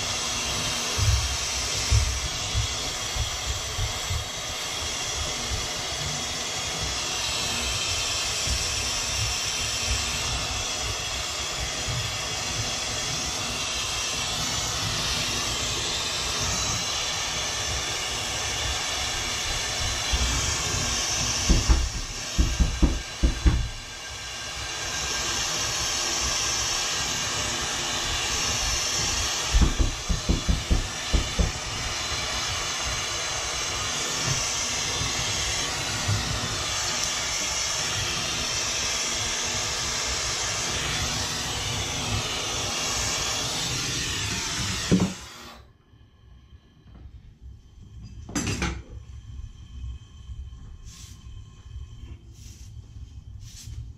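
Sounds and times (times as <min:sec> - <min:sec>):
gas torch hissing: 0:00.0 - 0:53.9
knocks: 0:21.5 - 0:23.8, 0:29.5 - 0:31.6.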